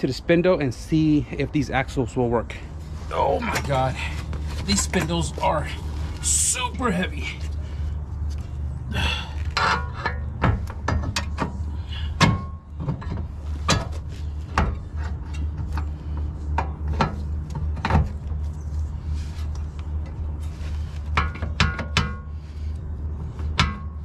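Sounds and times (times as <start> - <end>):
steady low hum: 0.0 - 24.0
metal parts clanking and scraping: 9.3 - 18.5.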